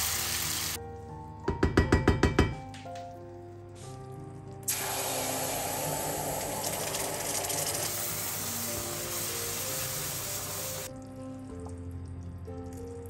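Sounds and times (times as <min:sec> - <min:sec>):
background music: 0:00.0 - 0:13.0
caramel hissing and bubbling: 0:03.7 - 0:13.0.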